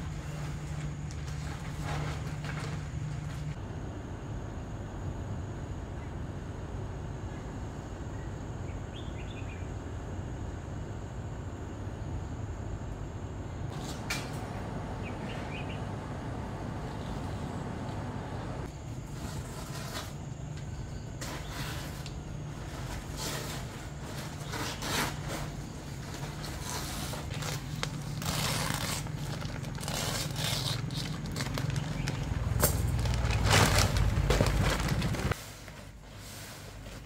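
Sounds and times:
plastic tarpaulin rustling: 0.0s - 3.6s, 21.2s - 37.0s
steady low hum: 0.0s - 37.0s.

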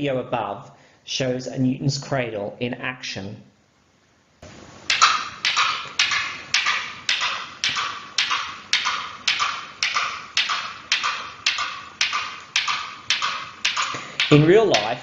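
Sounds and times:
metal balls clacking: 4.9s - 15.0s.

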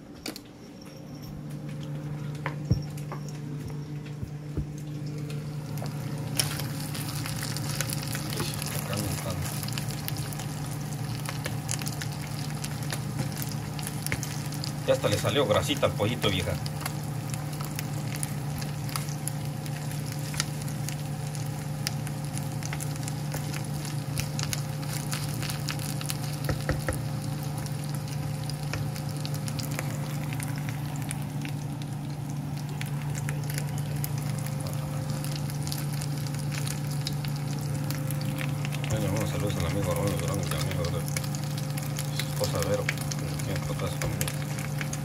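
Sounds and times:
low hum: 0.0s - 15.2s
chicken sizzling in a pan: 5.4s - 45.0s.

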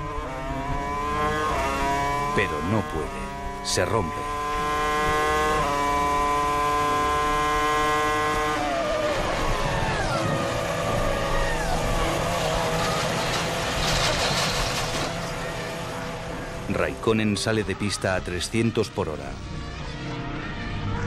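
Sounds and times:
racing car engine at high revs: 0.0s - 18.1s
tyres skidding: 7.2s - 17.5s.

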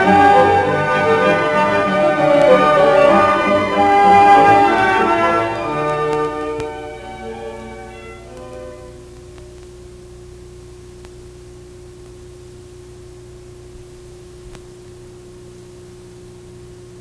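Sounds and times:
closing music: 0.0s - 9.6s
faint electrical hum: 0.0s - 17.0s
tape hiss: 0.0s - 17.0s
faint ticks: 10.9s - 11.3s.

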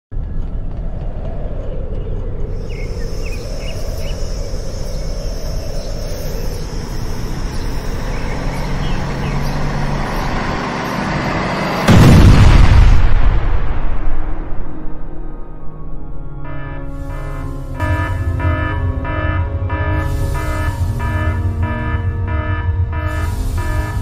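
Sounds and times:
low vehicle rumble: 0.1s - 14.3s
sudden loud burst: 11.3s - 15.7s
thin high whine: 16.5s - 24.0s.

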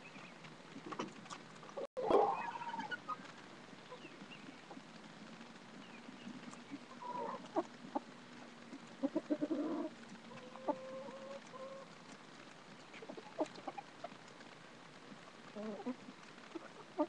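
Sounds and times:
chickens clucking: 0.1s - 4.9s, 5.9s - 14.5s, 15.5s - 17.0s
chicken long steady call: 9.0s - 12.0s.

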